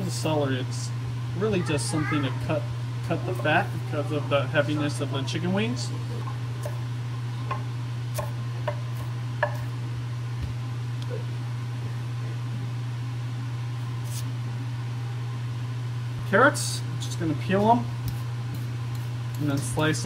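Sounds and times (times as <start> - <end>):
steady low hum: 0.0 - 20.0
knife chopping on wooden board: 6.2 - 6.8, 7.5 - 9.7.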